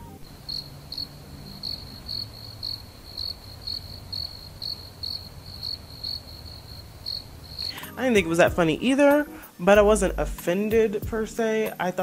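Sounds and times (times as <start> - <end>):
crickets chirping: 0.1 - 9.7.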